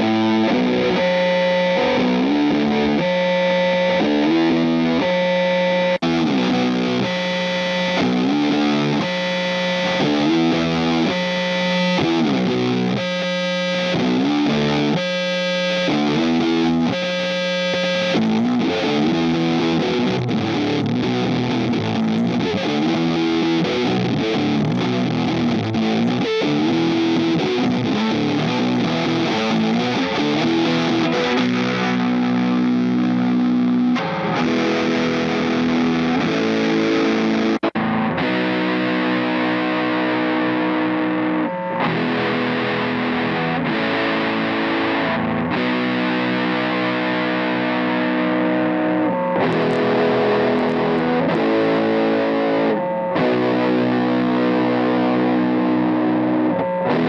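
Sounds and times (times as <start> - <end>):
distorted electric guitar: 0.0 - 57.0.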